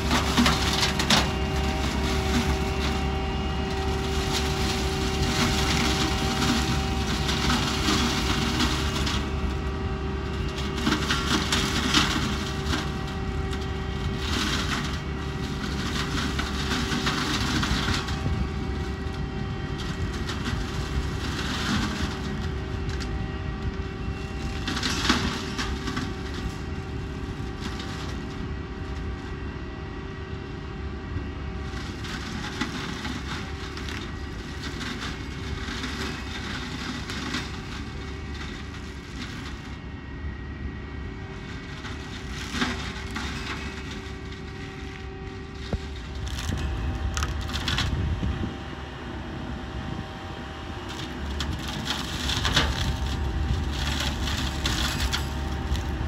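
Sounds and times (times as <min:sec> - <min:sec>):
machinery steady whine: 0:00.0 - 0:56.0
wood cracking and splintering: 0:45.6 - 0:48.0.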